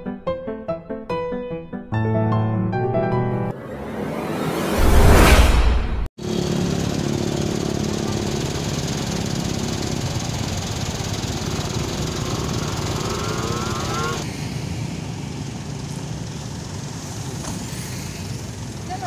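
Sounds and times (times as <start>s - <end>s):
road traffic: 3.5s - 5.4s, 6.2s - 19.0s
engine revving up: 6.2s - 15.1s
vehicle engine running: 6.2s - 19.0s.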